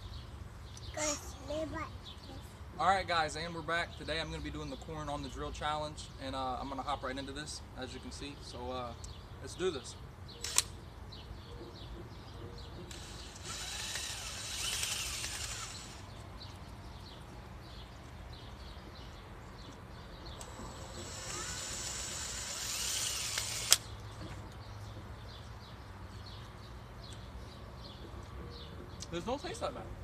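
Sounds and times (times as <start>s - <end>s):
sharp click: 10.4s - 10.8s, 23.0s - 24.0s
cordless drill spinning corn cob: 12.9s - 16.2s, 20.4s - 23.9s.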